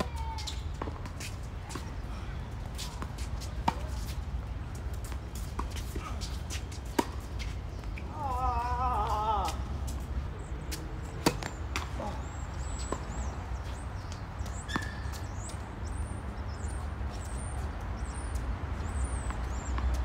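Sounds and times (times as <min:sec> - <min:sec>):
small birds chirping: 0:00.0 - 0:20.0
tennis ball hit by racket: 0:11.2 - 0:12.0.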